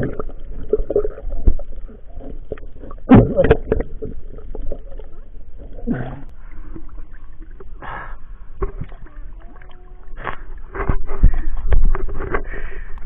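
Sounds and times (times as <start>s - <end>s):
water sloshing: 0.0s - 12.7s
muffled underwater noise: 4.4s - 12.8s.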